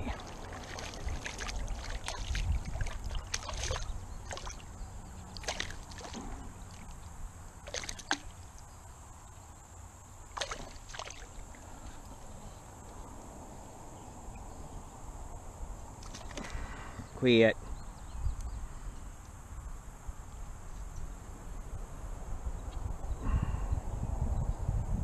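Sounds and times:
fish splashing in water: 0.0 - 7.0, 7.6 - 8.7, 10.3 - 12.0, 16.0 - 16.7.

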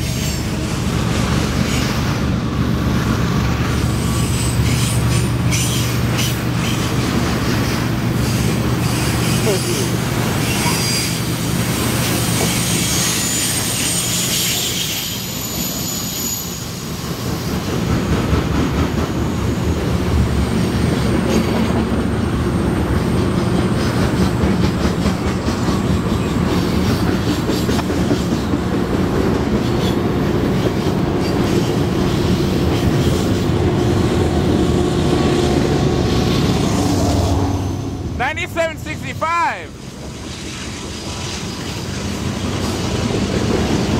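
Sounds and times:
train wheels rumbling on rails: 0.0 - 43.9
wheel squeal: 4.0 - 6.9, 10.4 - 11.3, 12.2 - 16.9.

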